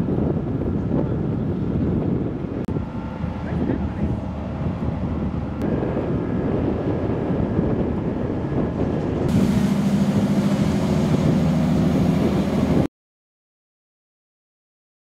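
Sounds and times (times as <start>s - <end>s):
boat diesel engines running: 0.1s - 12.9s
water churning: 2.7s - 12.9s.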